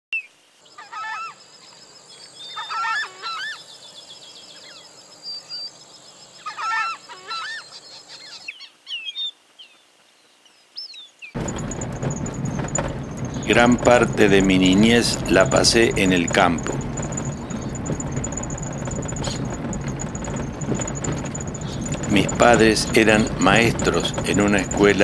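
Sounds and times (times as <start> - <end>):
coots honking: 6.4 - 7.6, 11.4 - 25.0
vehicle road noise: 11.4 - 25.0.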